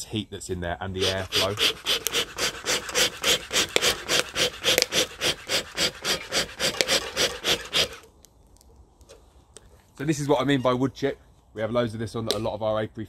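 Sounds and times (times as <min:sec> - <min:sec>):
bee smoker bellows puffing: 0:01.0 - 0:08.0.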